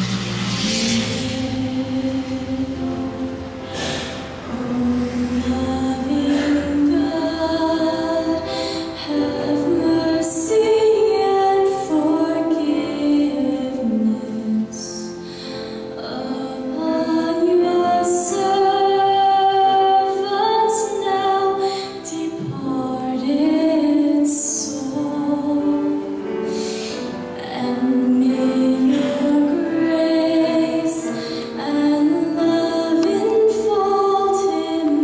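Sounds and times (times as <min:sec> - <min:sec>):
woman singing a hymn: 0:00.5 - 0:35.0.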